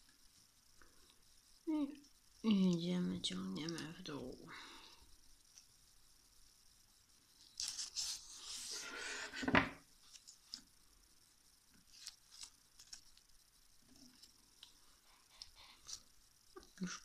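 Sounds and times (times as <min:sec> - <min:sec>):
tape crinkly rustle: 0:07.4 - 0:08.6, 0:10.0 - 0:10.6, 0:11.8 - 0:13.3
sharp tape crackle: 0:11.9 - 0:13.4.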